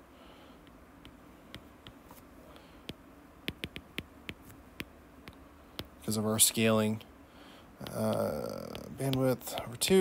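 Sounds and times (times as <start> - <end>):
stylus tapping on glass screen: 2.9 - 6.0, 7.8 - 10.0.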